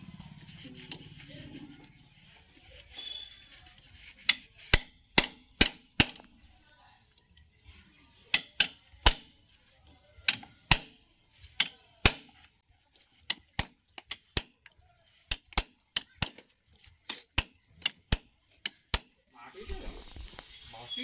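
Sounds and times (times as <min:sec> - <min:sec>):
hammer striking metal bar: 0:04.3 - 0:06.3, 0:08.3 - 0:09.3, 0:10.3 - 0:11.0, 0:11.6 - 0:12.4, 0:17.1 - 0:19.2.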